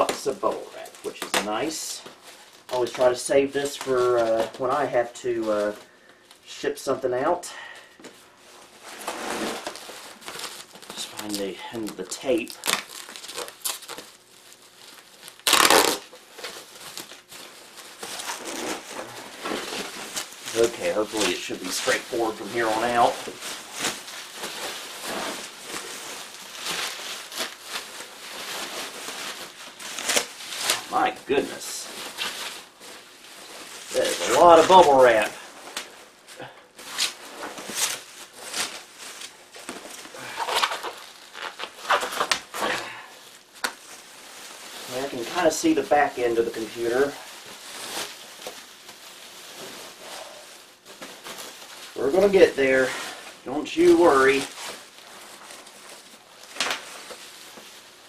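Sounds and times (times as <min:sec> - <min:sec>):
bubble wrap rustling and crinkling: 0:00.0 - 0:58.0
packing tape ripping: 0:08.8 - 0:53.0, 0:53.6 - 0:58.0.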